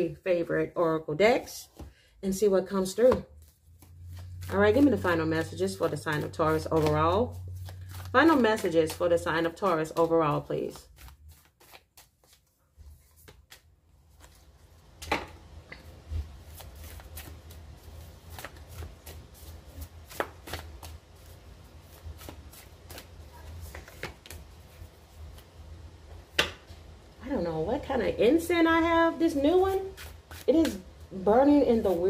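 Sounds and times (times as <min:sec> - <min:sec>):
cards being shuffled: 0:03.0 - 0:14.6, 0:15.9 - 0:26.6, 0:29.7 - 0:32.0.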